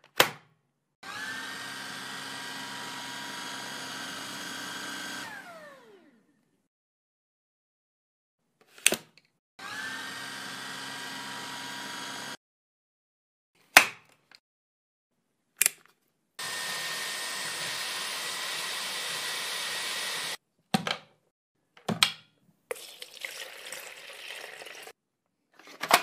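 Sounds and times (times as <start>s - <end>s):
cordless vacuum cleaner running: 1.0s - 6.2s, 9.6s - 12.4s, 16.4s - 20.4s.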